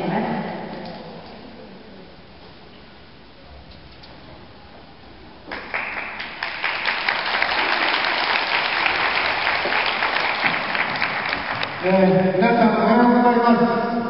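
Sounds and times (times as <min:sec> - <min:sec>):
crowd applauding: 0:05.5 - 0:12.0.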